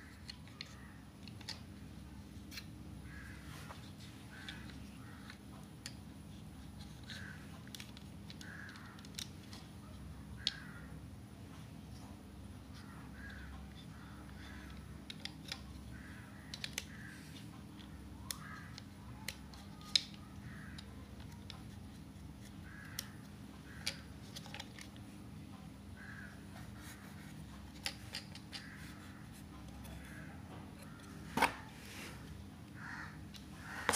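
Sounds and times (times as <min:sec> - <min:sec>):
plastic toy train handled: 0:23.7 - 0:25.0.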